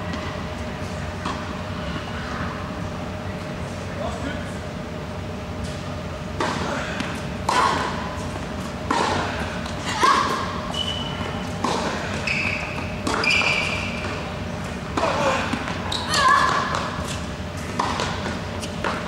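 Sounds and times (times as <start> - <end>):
tennis balls bouncing on court: 6.4 - 19.0
racket hitting tennis ball: 8.8 - 9.4, 11.6 - 12.2, 14.9 - 19.0
shoes squeaking: 9.7 - 19.0.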